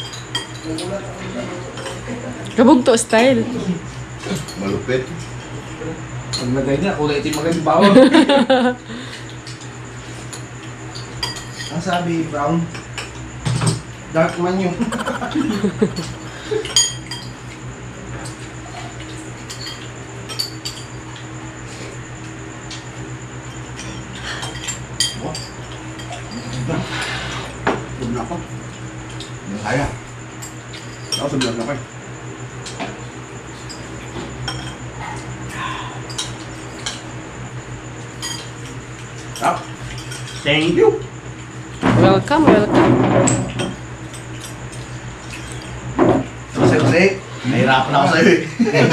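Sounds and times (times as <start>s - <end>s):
spoons clinking against bowls: 0.0s - 0.9s, 11.0s - 12.1s, 15.5s - 17.4s, 19.4s - 21.0s, 38.2s - 40.5s
steady low hum: 0.0s - 48.9s
spoons clinking on ceramic bowls: 16.7s - 17.4s.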